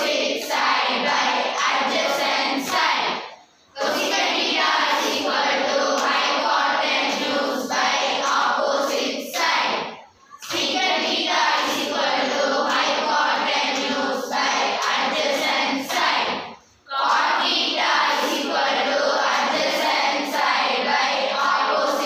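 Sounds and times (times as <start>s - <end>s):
girls singing together: 0.0s - 22.0s.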